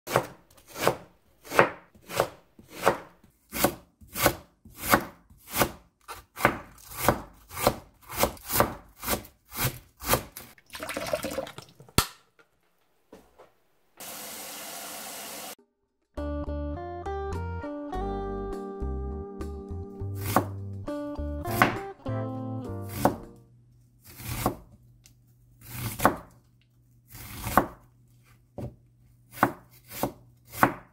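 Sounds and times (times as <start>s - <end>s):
music: 15.6s - 23.6s.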